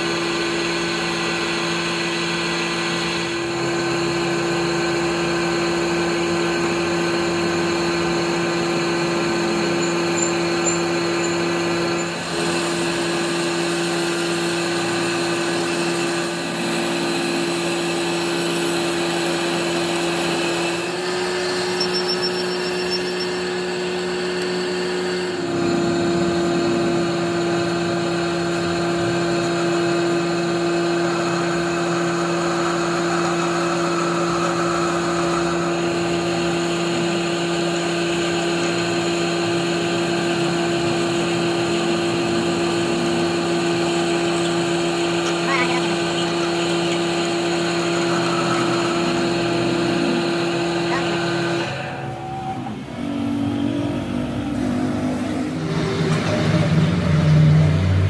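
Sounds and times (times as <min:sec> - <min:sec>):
drill cutting metal: 0:00.0 - 0:53.2
lathe motor hum: 0:00.0 - 0:58.0.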